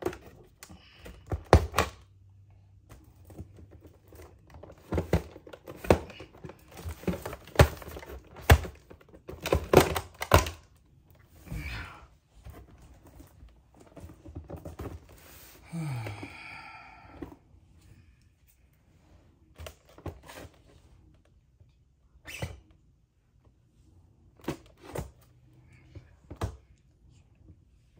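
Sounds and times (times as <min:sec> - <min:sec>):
packaging clicks and knocks: 0:00.0 - 0:02.0, 0:03.2 - 0:10.7.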